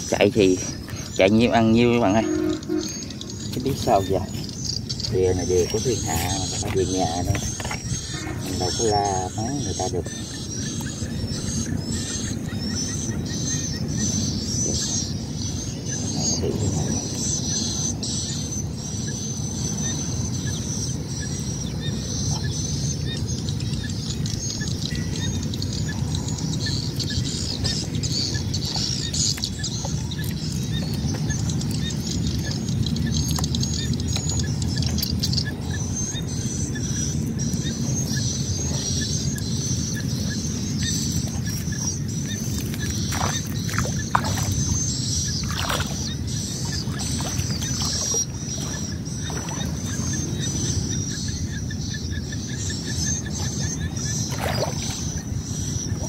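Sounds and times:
wind rumbling on microphone: 0.0 - 56.0
high-pitched insect buzz: 2.0 - 6.6.

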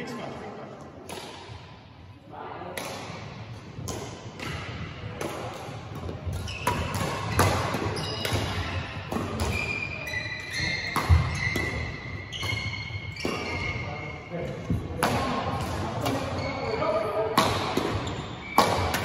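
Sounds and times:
rackets hitting shuttlecock: 0.9 - 1.7, 2.7 - 13.8, 14.5 - 16.5, 17.2 - 19.0
shoes squeaking on floor: 6.3 - 8.8, 9.4 - 14.3, 16.3 - 16.9.

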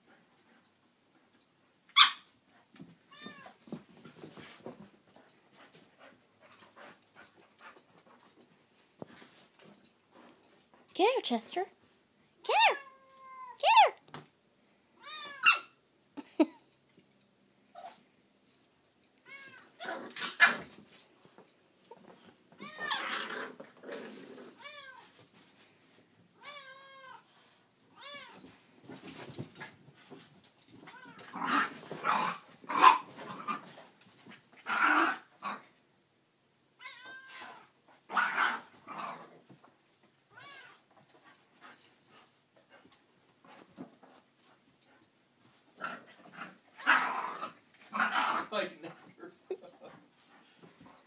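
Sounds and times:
dogs growling: 19.8 - 20.7, 22.8 - 24.6, 31.2 - 33.8, 34.6 - 35.7, 38.1 - 39.4, 45.7 - 48.6.

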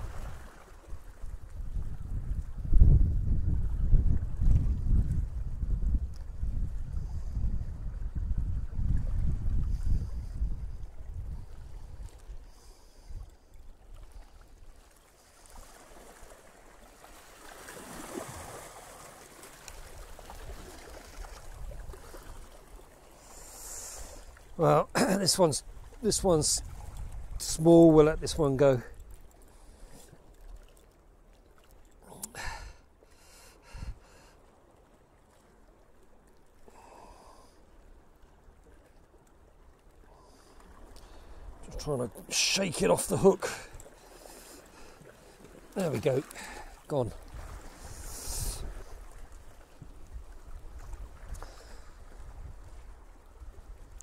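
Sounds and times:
sea water lapping against rocks: 0.0 - 2.7, 8.0 - 54.0
wind rumble on microphone: 0.0 - 14.7, 19.9 - 22.5, 25.6 - 29.2, 33.7 - 34.1, 47.1 - 54.0.

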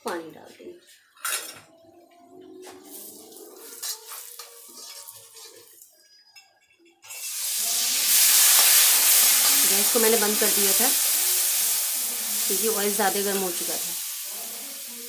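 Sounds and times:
loud oil sizzle: 2.9 - 5.9, 7.1 - 15.0
metal ladle scraping pan: 3.1 - 5.8.

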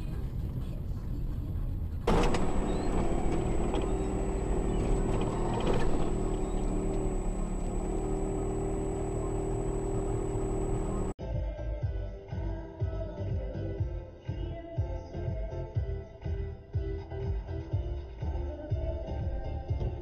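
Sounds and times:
car engine and road rumble: 0.0 - 11.2.

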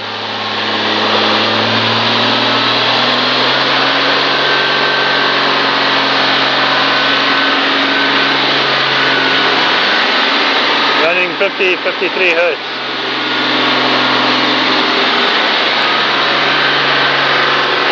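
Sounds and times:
engine running under load: 0.0 - 17.9.

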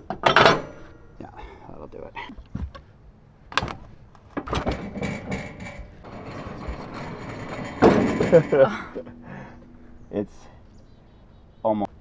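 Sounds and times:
metal clanking and rattling: 0.0 - 1.0, 3.5 - 10.1.

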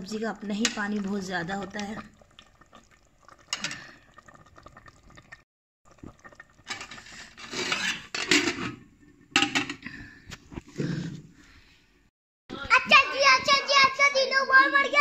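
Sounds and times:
metal pot lid clattering: 7.5 - 9.8.

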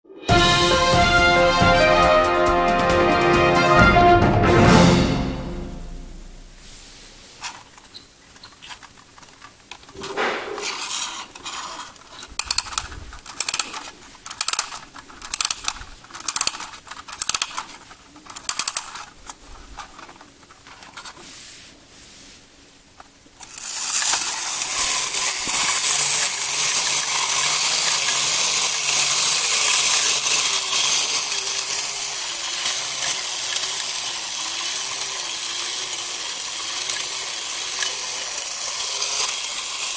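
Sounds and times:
toy spring motor gear whir: 7.4 - 21.2, 23.4 - 39.9
clockwork winding clicks: 7.5 - 10.0, 10.6 - 21.2, 23.4 - 39.9.

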